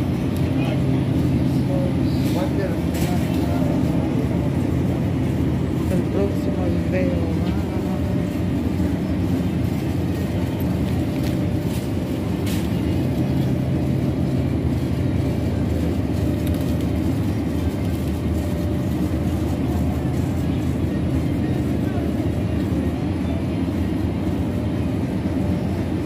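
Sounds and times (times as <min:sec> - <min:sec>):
shopping cart rolling: 0:01.4 - 0:04.7.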